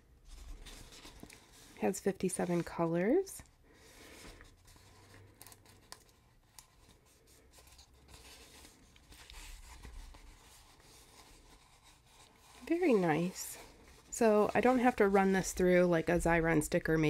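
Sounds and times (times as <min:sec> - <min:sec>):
paper sheet rustling: 0:00.2 - 0:17.0.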